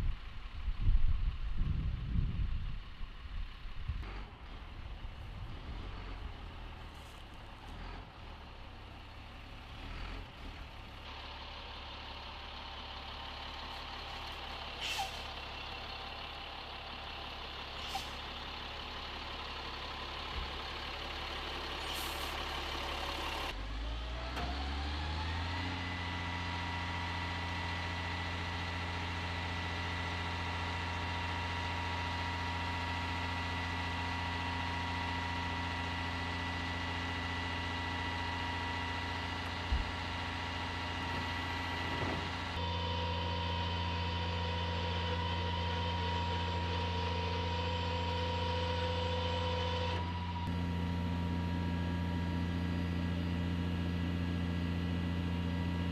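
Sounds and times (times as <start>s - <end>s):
diesel engine idling: 0.0s - 55.9s
hydraulic whine: 40.9s - 52.8s.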